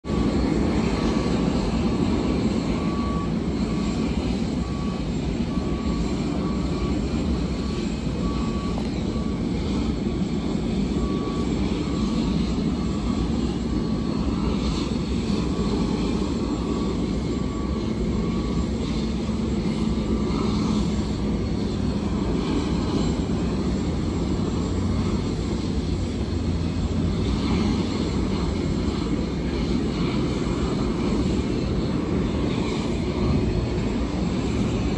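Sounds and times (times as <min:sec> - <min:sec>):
jet aircraft rumble: 0:00.0 - 0:34.9
faint repeating beep: 0:00.1 - 0:21.5.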